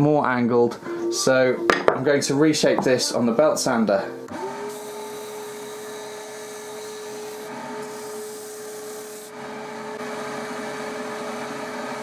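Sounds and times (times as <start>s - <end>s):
sander motor hum: 4.3s - 12.0s
wood rasping on sanding belt: 4.7s - 9.3s.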